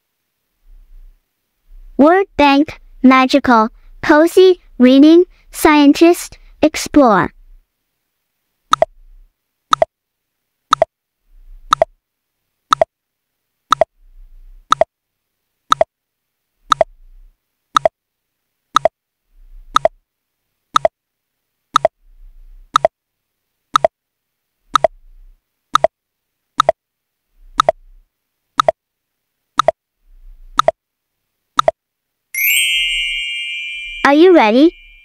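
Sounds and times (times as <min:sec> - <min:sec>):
clock ticking: 0:08.7 - 0:08.9, 0:10.7 - 0:10.9, 0:11.7 - 0:11.9, 0:12.7 - 0:12.9, 0:13.7 - 0:13.9, 0:14.7 - 0:14.9, 0:15.7 - 0:15.9, 0:16.7 - 0:16.9, 0:18.7 - 0:18.9, 0:19.7 - 0:20.0, 0:20.7 - 0:21.0, 0:21.7 - 0:22.0, 0:22.7 - 0:22.9, 0:23.7 - 0:23.9, 0:24.7 - 0:25.0, 0:25.7 - 0:25.9, 0:26.6 - 0:26.8, 0:27.5 - 0:27.8, 0:28.6 - 0:28.8, 0:29.6 - 0:29.8, 0:30.6 - 0:30.8, 0:31.6 - 0:31.8.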